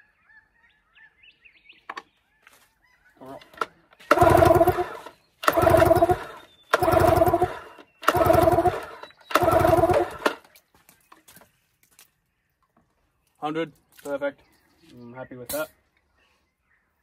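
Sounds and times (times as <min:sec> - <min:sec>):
outboard pull-starter pulls: 0:03.4 - 0:10.5.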